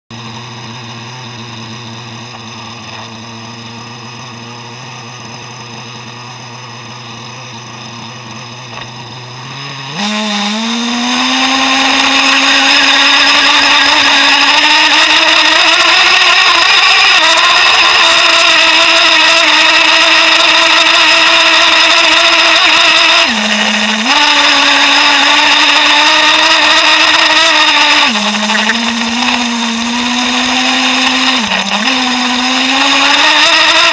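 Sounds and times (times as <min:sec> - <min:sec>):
small two-stroke engine revving: 0:00.1 - 0:33.9.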